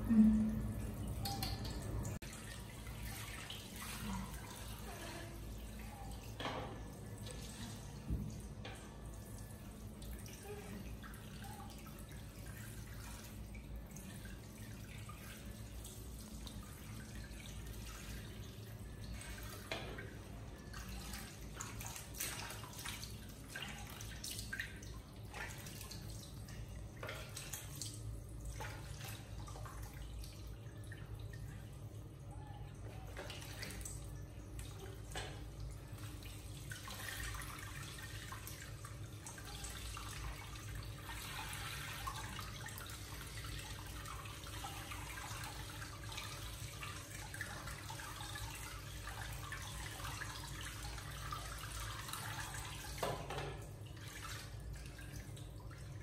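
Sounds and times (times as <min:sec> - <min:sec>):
water dripping into plastic tub: 0:00.0 - 0:05.0.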